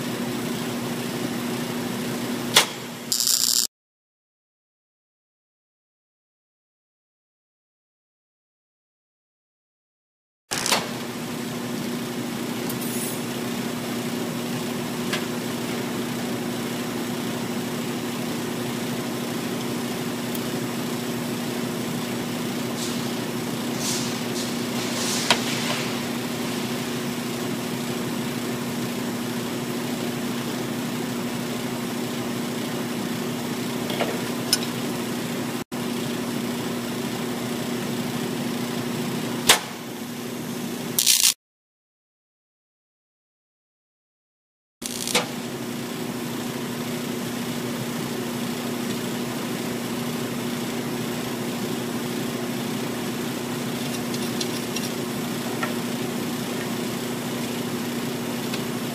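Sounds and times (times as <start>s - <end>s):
welder machine hum: 0.0s - 3.7s, 10.5s - 41.4s, 44.8s - 58.9s
fan-like hiss: 22.5s - 27.8s.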